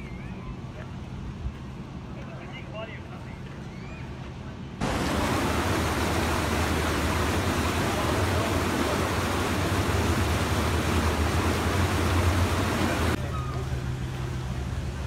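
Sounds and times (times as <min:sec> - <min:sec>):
water rushing over concrete step: 0:04.8 - 0:13.2.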